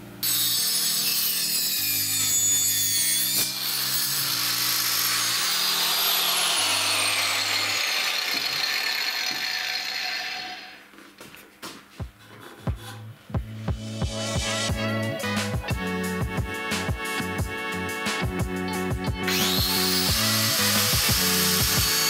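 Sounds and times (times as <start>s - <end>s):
angle grinder sawing wood: 0.2s - 10.9s, 19.2s - 22.0s
background music chords: 13.4s - 22.0s.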